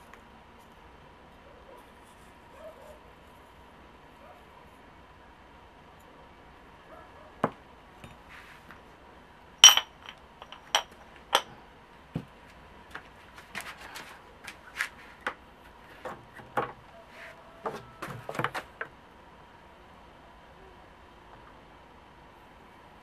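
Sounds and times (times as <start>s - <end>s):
metal spoon clinking on table: 9.6s - 11.5s.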